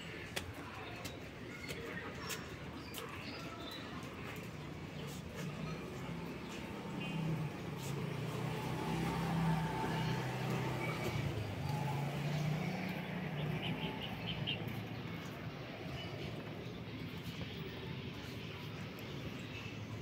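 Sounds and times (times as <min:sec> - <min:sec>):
vehicle engine humming: 0:05.4 - 0:20.0.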